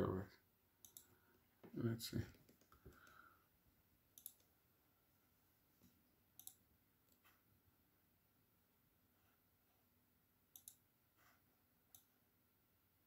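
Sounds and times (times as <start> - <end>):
computer mouse clicks: 0.8 - 1.2, 2.3 - 3.2, 4.1 - 4.5, 6.4 - 7.2, 10.5 - 10.8, 11.9 - 12.1.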